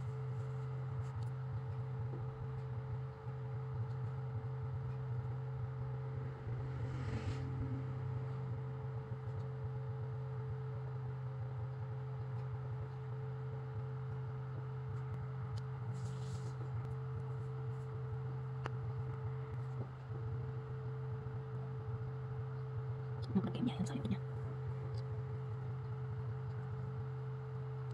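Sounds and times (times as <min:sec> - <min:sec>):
steady low hum: 0:00.0 - 0:27.9
faint steady tone: 0:04.9 - 0:10.3.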